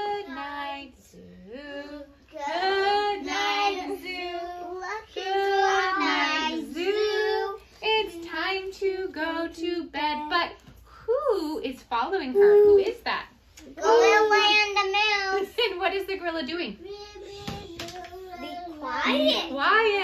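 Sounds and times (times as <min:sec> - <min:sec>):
children singing: 0:01.8 - 0:07.6.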